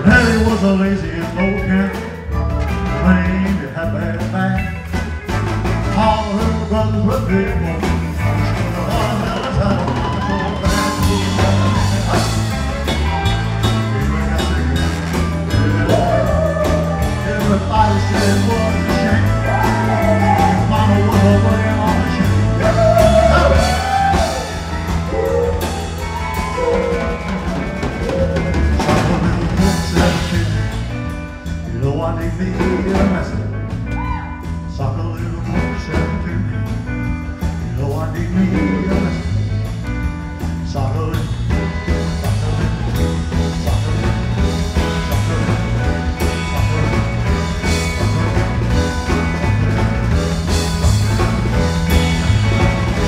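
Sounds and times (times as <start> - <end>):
live rock band playing: 0.0 - 53.0
wordless vocals: 5.9 - 12.9, 37.8 - 39.5.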